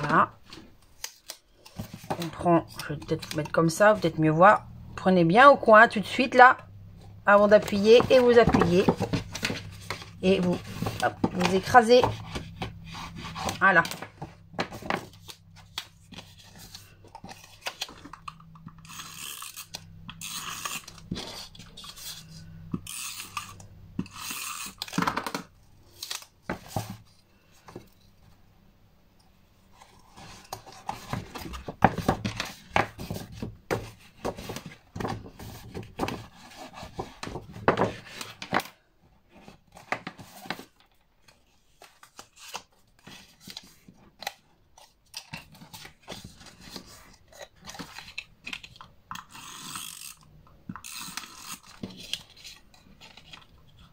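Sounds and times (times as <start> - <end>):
paper and card rustling: 0.0 - 4.1, 7.0 - 27.9, 29.7 - 53.9
low steady hum: 1.6 - 38.4.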